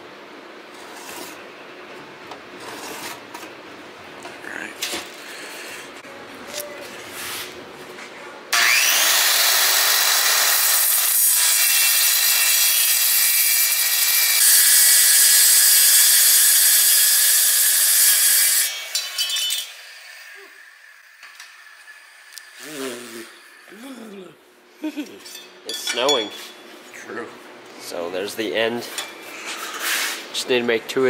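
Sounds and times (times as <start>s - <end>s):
circular saw cutting metal sheet: 8.6s - 23.7s.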